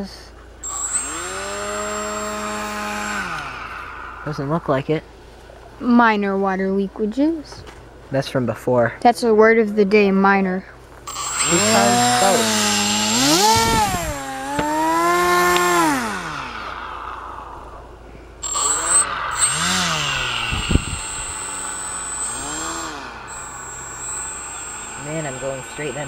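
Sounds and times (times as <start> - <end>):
electric motor and propeller whining: 0.6 - 6.0, 11.0 - 26.0.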